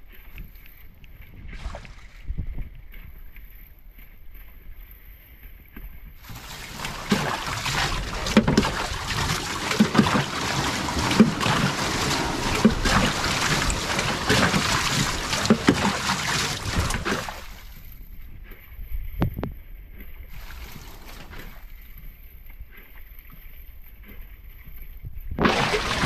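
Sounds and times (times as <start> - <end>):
water splashing from bailing jug: 6.2 - 17.8, 20.3 - 21.7, 25.3 - 26.0.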